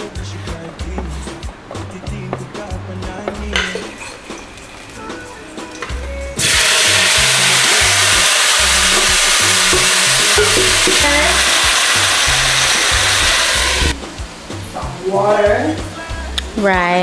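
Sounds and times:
food sizzling in hot pot: 4.0 - 5.6, 6.4 - 14.0.

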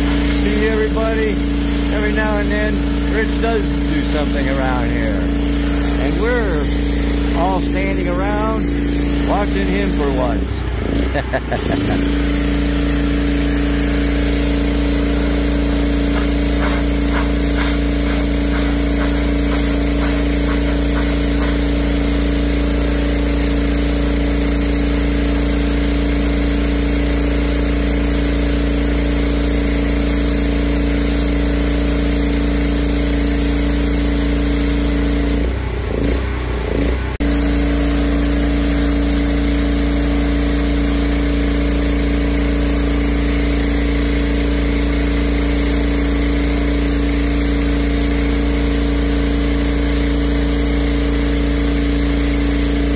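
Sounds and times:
water jet hissing on concrete: 0.0 - 35.6, 37.2 - 52.9
pressure washer motor droning: 0.0 - 52.9.

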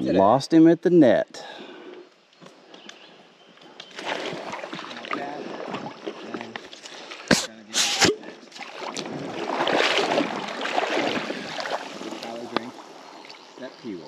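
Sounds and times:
water sloshing: 3.8 - 7.4, 8.1 - 13.6.

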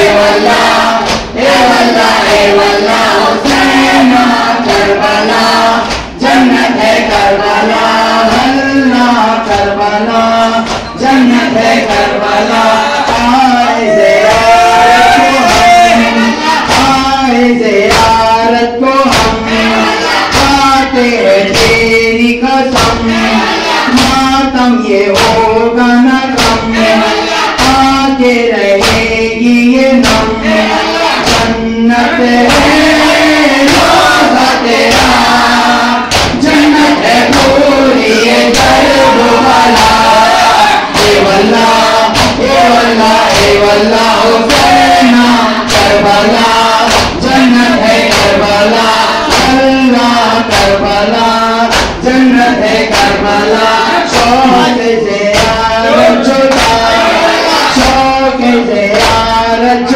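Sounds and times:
crowd of men chanting: 0.0 - 59.9
man chanting into microphone: 0.0 - 59.9
chest-beating strikes: 30.0 - 50.9.

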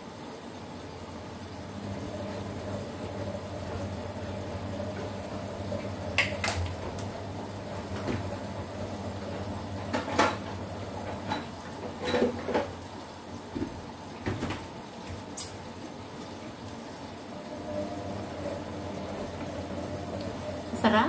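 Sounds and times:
kitchen items clattering: 9.8 - 12.8.

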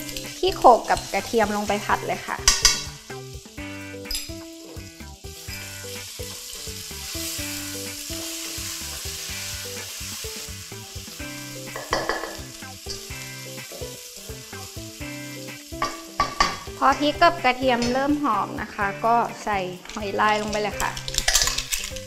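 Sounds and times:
spatula scraping a wok: 0.0 - 16.8
chilies sizzling in hot oil: 0.0 - 22.0
soft background music: 0.0 - 22.0.

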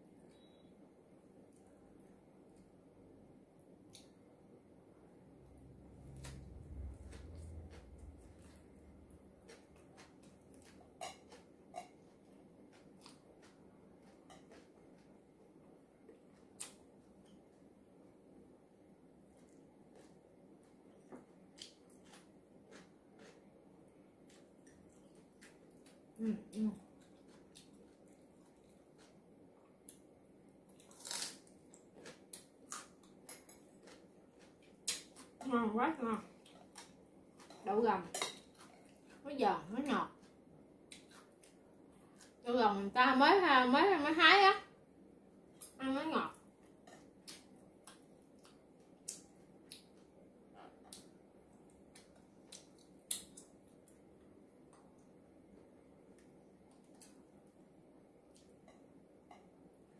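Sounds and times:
crunchy chewing: 6.1 - 15.2, 21.5 - 23.6, 26.8 - 30.0, 30.7 - 35.5
crisp crunches of chewing: 30.7 - 33.0.

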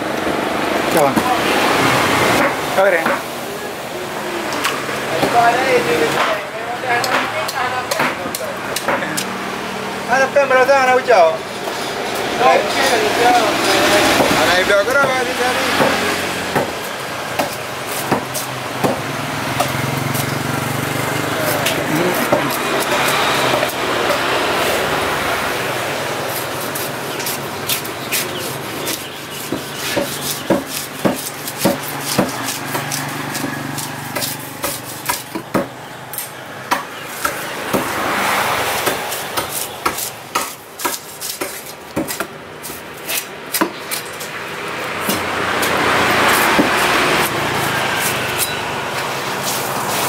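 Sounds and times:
rushing background noise: 0.0 - 50.0
knife chopping into wood: 7.0 - 9.3, 15.0 - 20.3, 21.4 - 24.3, 26.3 - 44.3, 45.0 - 48.6
knife scraping: 21.3 - 24.8, 26.2 - 35.4, 38.7 - 48.6, 49.2 - 50.0.

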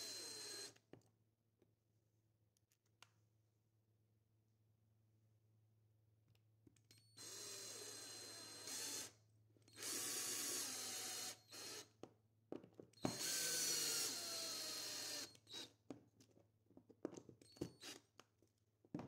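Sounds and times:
drill motor whining: 0.0 - 0.8, 7.2 - 9.1, 9.8 - 11.9, 13.0 - 15.7.

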